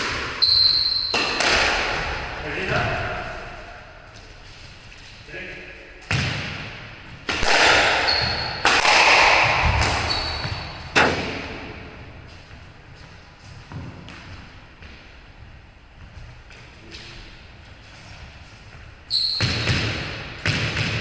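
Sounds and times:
ball striking court walls: 0.0s - 3.2s, 6.0s - 12.2s, 19.3s - 21.0s
sneakers squeaking on wooden floor: 0.0s - 5.1s, 7.8s - 20.9s
racquet strokes cracking: 8.6s - 10.1s.

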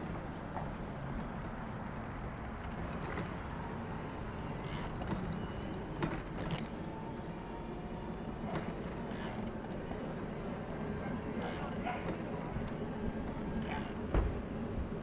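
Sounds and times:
bicycle clicks and rattles: 0.0s - 7.4s, 8.4s - 10.2s, 11.4s - 14.3s
wind: 0.0s - 15.0s
bicycle tyres rumbling: 11.3s - 15.0s.

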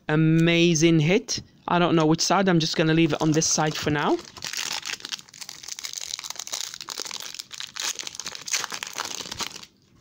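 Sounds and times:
plastic wrapper crinkling: 2.7s - 9.9s.

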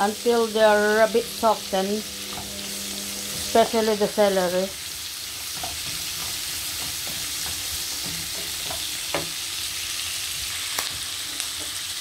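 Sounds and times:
vegetables sizzling in a frying pan: 0.0s - 12.0s
wooden spatula scraping a pan: 5.4s - 9.4s.

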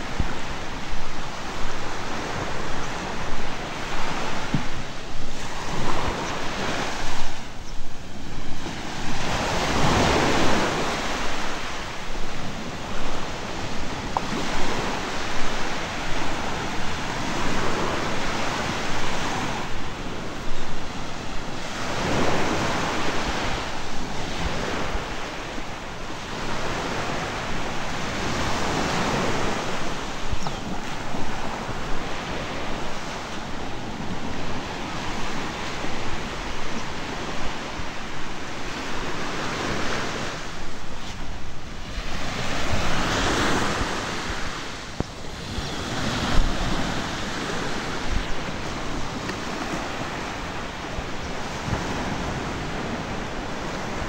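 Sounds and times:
small waves breaking on shore: 0.0s - 54.0s
wind rumbling on microphone: 0.0s - 54.0s.

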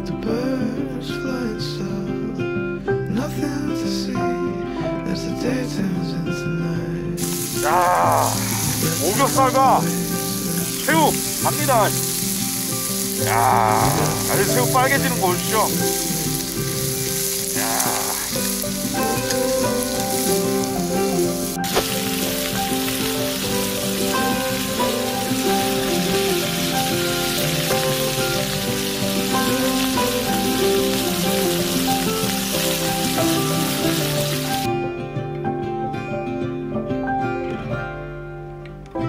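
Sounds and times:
background music: 0.0s - 39.0s
food sizzling on a griddle: 7.2s - 34.7s.

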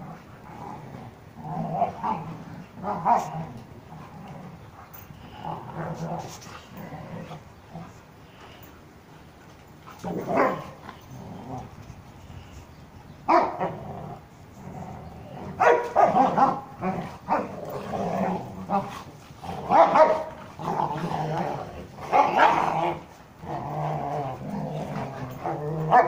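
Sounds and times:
dogs growling: 0.0s - 26.0s
dogs barking sharply: 10.3s - 10.8s, 13.3s - 13.7s, 15.6s - 16.7s, 19.7s - 20.4s.

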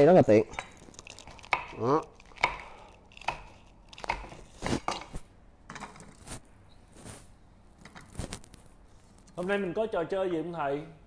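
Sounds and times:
knife chopping on wooden board: 3.3s - 5.0s.

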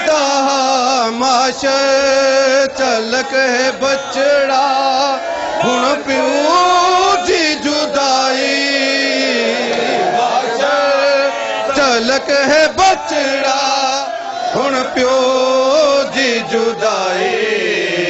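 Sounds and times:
man chanting a lament: 0.0s - 18.0s.

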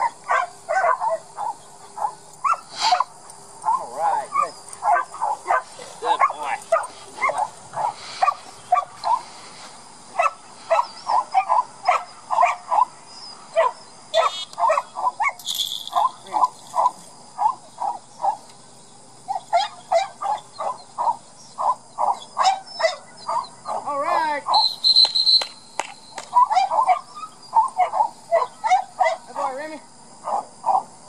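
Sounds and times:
dog yipping and whining: 21.6s - 23.8s, 26.3s - 29.2s.

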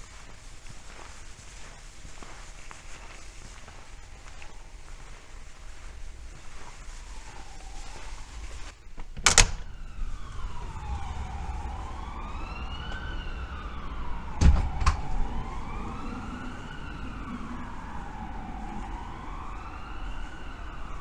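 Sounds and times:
siren wailing: 5.8s - 21.0s.

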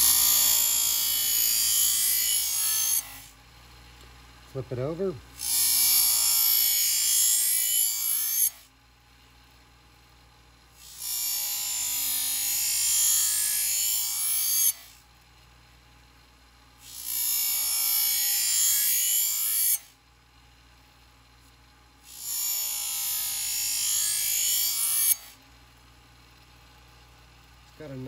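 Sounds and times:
knife on grinding wheel scraping hiss: 0.0s - 3.3s.

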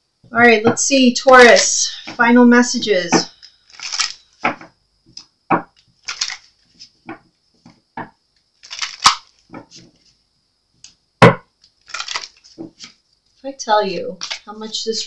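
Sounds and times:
cards being shuffled: 3.7s - 5.2s, 6.0s - 7.0s, 8.6s - 10.1s, 11.8s - 13.0s.

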